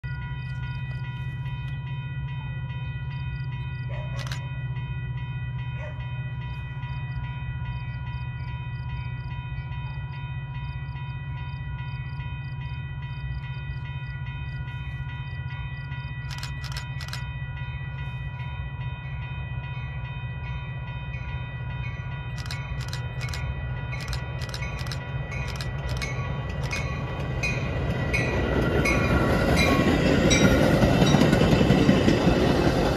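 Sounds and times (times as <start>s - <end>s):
distant diesel train rumble: 0.0s - 32.9s
sharp clicks: 16.3s - 17.2s, 24.0s - 26.9s.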